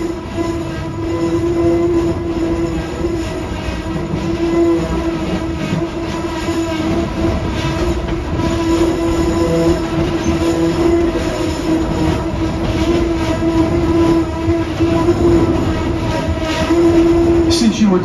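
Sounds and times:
constant humming tone: 0.0 - 18.0
train rumbling on track: 0.0 - 18.0.

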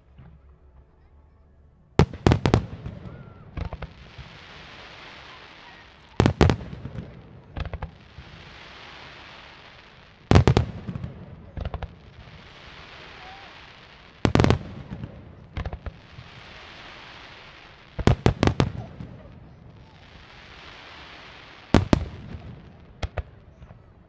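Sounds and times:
hiss of burning firework stars: 2.0 - 24.0
firework pops: 5.0 - 23.8.

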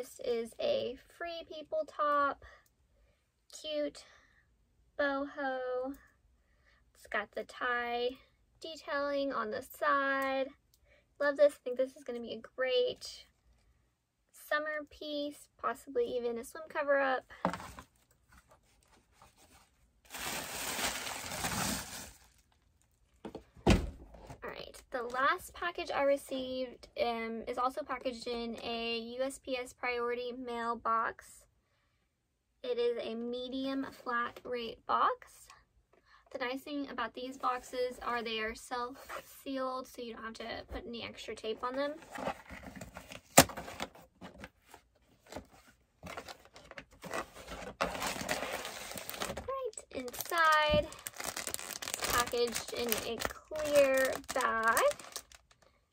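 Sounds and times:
packaging rustling: 17.5 - 23.4, 42.0 - 55.7
cardboard box ripping: 20.1 - 22.2, 47.0 - 49.5, 51.1 - 53.3.

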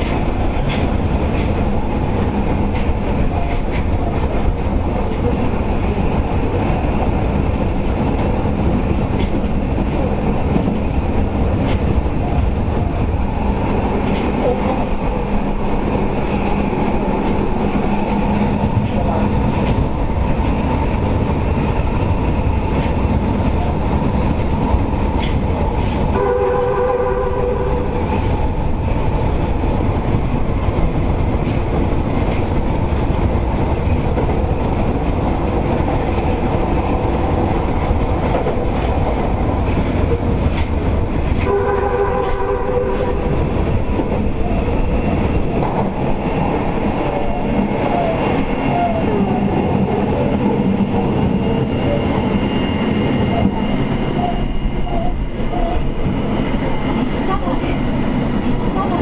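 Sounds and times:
train wheels rumbling: 0.0 - 59.0
train horn: 26.1 - 28.0, 41.4 - 43.3.

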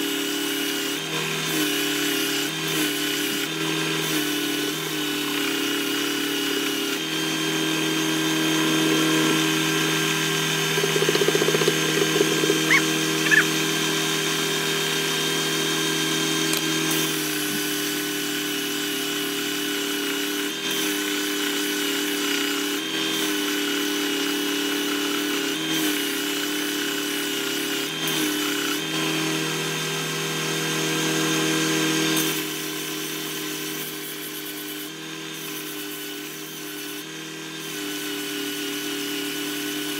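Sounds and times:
wood sanding on belt: 0.0 - 13.9, 32.2 - 39.9
belt sander motor hum: 0.0 - 39.9
brief squeaks: 12.5 - 13.5.

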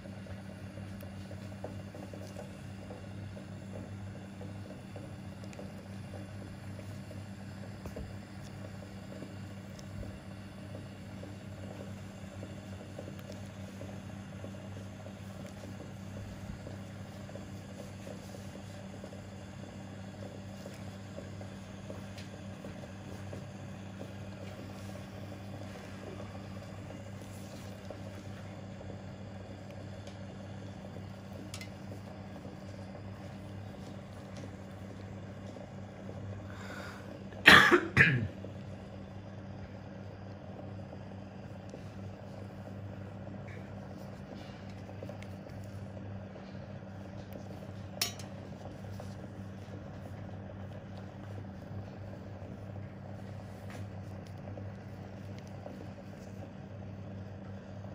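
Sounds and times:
low electrical hum: 0.0 - 57.9
person coughing: 37.4 - 38.4.

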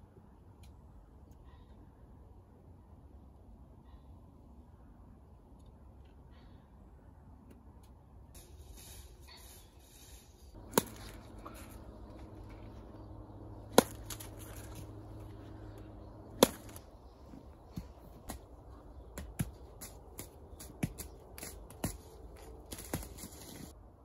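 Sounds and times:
low steady hum: 0.0 - 24.0
apples being struck: 10.6 - 18.4.

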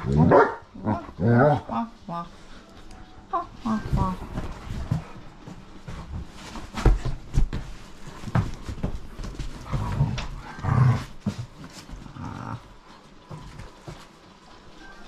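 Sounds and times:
dogs growling: 0.0 - 2.3, 9.4 - 14.0.

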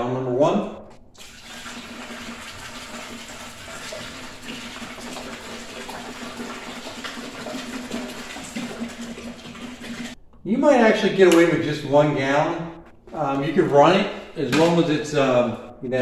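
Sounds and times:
liquid pouring into plastic bucket: 1.1 - 10.2.

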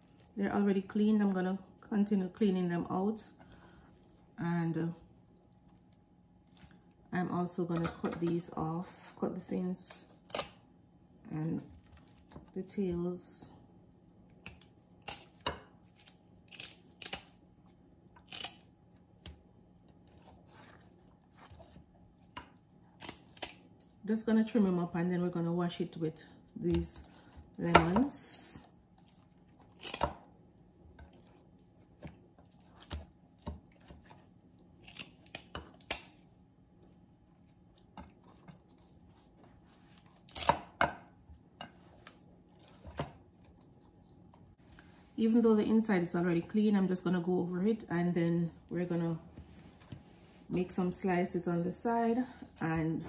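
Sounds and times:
kitchen shears snipping fish fins: 14.4 - 17.4, 23.0 - 23.6, 29.8 - 30.2.

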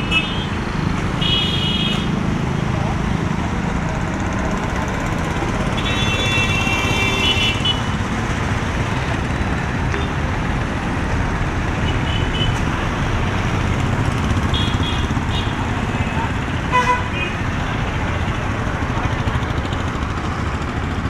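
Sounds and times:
traffic engines rumbling: 0.0 - 21.0
vehicle horn: 5.8 - 7.8, 16.7 - 17.4.

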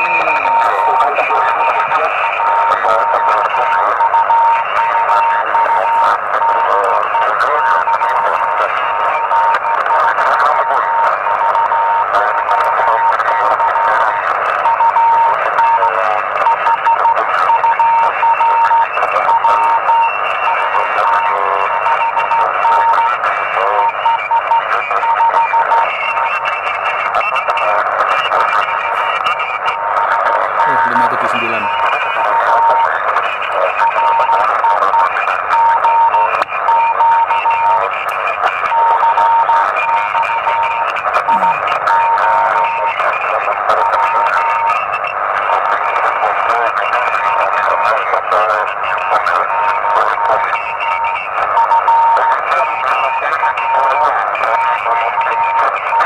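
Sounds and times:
morse code tone: 0.0 - 10.0, 14.6 - 23.2, 23.8 - 42.8
radio band noise hiss: 0.0 - 56.0.

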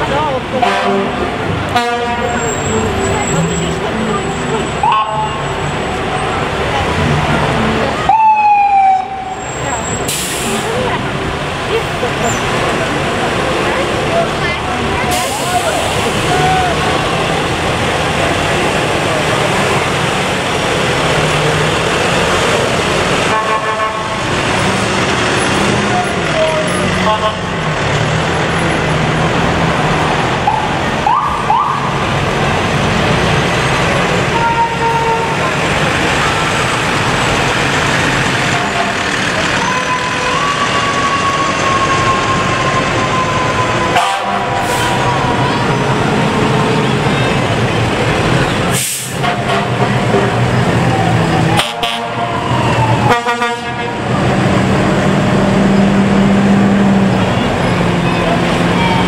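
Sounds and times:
diesel truck engines running: 0.0 - 59.0
air horn toots: 0.6 - 3.0, 23.3 - 24.2, 34.3 - 35.4, 43.0 - 45.2, 48.8 - 50.3, 51.6 - 52.3, 53.1 - 54.0
air hiss: 48.7 - 49.2.

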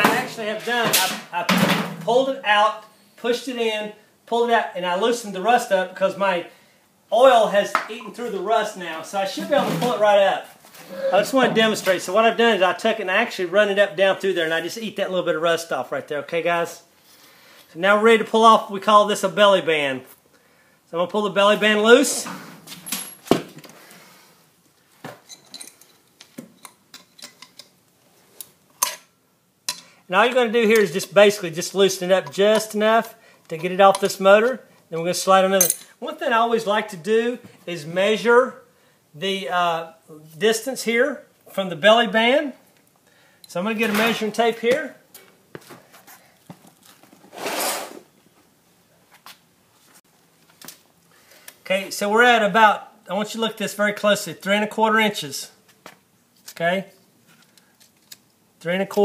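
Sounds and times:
metal tool clinking on metal: 25.3 - 26.0, 28.8 - 29.1, 35.6 - 36.0.

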